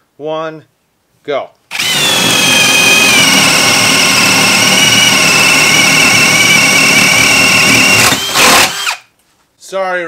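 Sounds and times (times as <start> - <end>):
drill boring into wood: 1.7 - 9.1.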